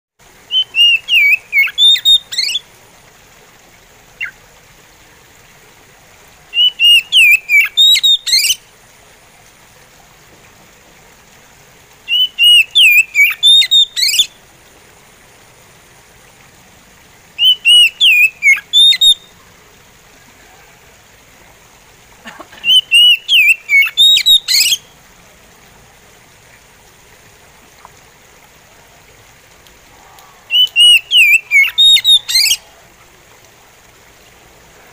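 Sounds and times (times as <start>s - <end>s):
bird singing high notes: 30.5s - 32.6s.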